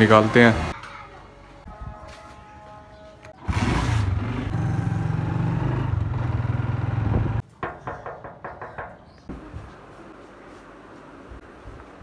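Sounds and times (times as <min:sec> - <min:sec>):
knuckles knocking on metal door: 0:07.6 - 0:09.1.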